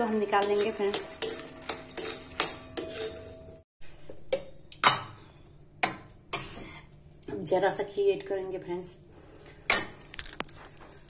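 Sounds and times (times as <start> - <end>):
metal spoon scraping a metal pan: 0.0 - 3.6, 6.4 - 6.9.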